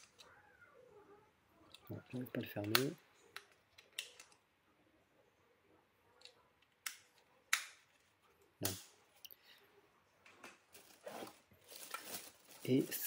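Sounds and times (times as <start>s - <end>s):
plastic remote control clicks: 2.5s - 4.4s.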